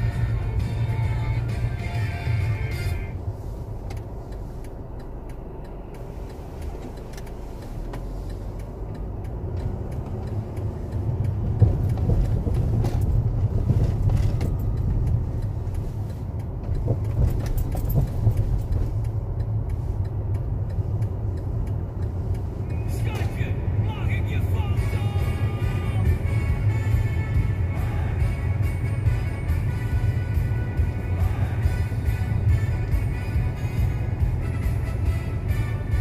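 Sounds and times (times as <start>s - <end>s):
car road noise rumble: 0.0s - 36.0s
faint rattles and clicks: 3.8s - 22.5s.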